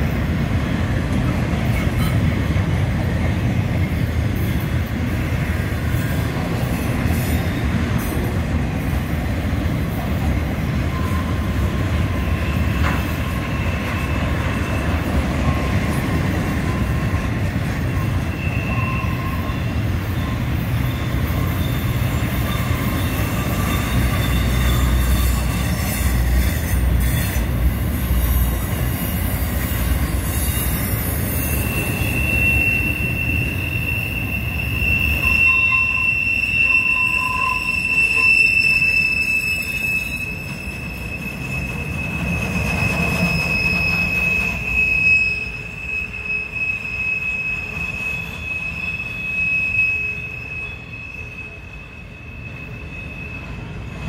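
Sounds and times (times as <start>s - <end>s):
freight train wheels rumbling: 0.0s - 54.0s
high-pitched wheel squeal: 10.7s - 54.0s.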